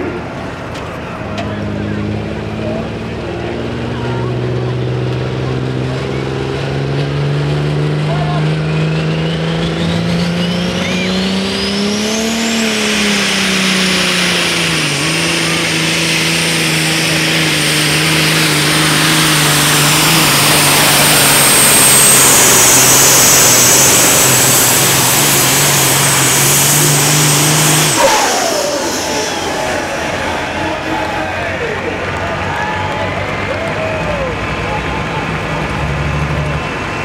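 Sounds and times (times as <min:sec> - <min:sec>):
truck diesel engine under load: 0:00.0 - 0:37.0
turbocharger whistle: 0:08.0 - 0:34.3.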